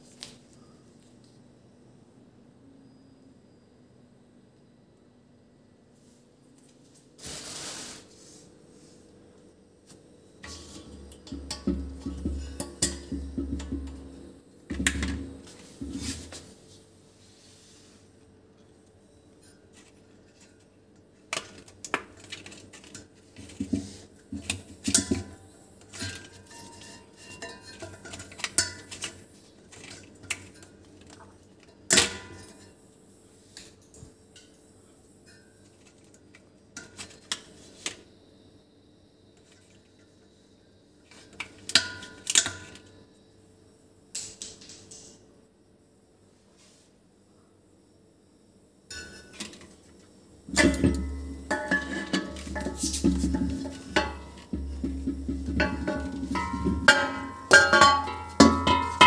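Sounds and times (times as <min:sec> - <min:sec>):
metallic clinks and knocks: 0:50.5 - 0:59.0.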